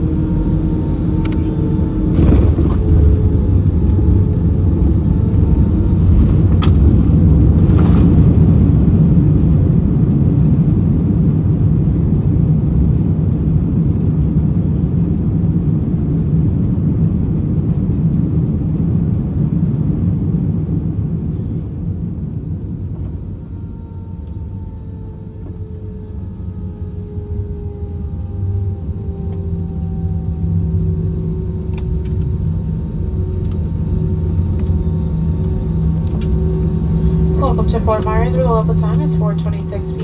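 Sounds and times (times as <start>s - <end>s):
jet engine whine: 0.0s - 40.0s
low rumble of aircraft rollout: 0.0s - 40.0s.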